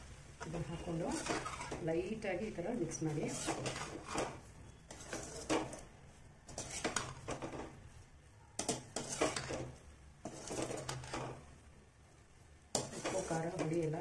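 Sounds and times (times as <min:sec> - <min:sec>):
metal ladle scraping a metal pan: 0:00.8 - 0:01.9, 0:03.1 - 0:07.7, 0:08.6 - 0:11.4, 0:12.7 - 0:13.9.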